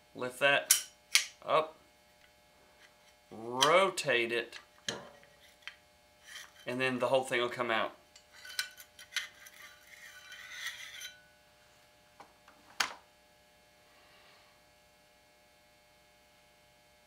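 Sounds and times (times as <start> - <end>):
rifle bolt scraping and clinking: 8.2 - 11.2.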